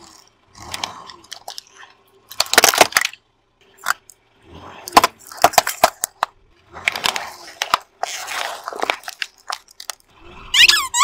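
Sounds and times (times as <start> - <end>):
plastic toys cracking under tyre: 0.6 - 1.7, 2.3 - 3.2, 4.9 - 10.1
foil packet crunching: 8.0 - 10.0.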